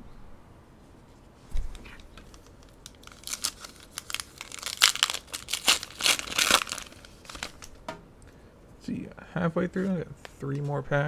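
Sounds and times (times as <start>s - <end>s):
foil wrapper tearing and crinkling: 2.3s - 7.8s.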